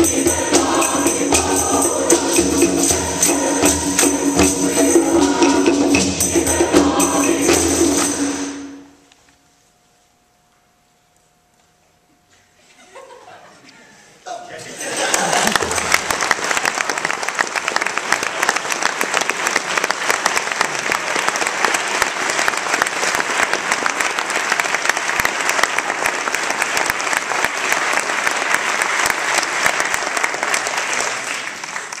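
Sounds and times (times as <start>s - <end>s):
audience applauding: 14.8s - 32.0s.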